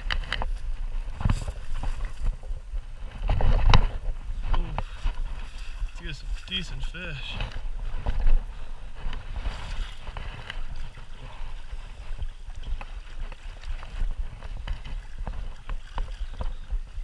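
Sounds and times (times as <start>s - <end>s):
wind buffeting microphone: 0.0s - 17.0s
stream water rushing: 4.4s - 17.0s.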